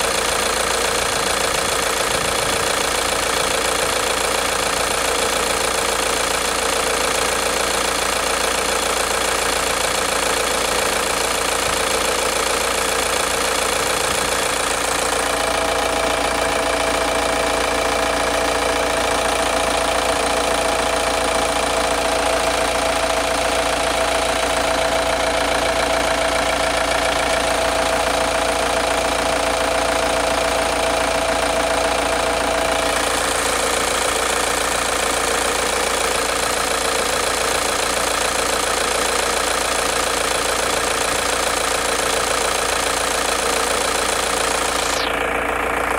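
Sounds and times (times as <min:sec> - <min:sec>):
diesel engine idling: 0:00.0 - 0:45.9.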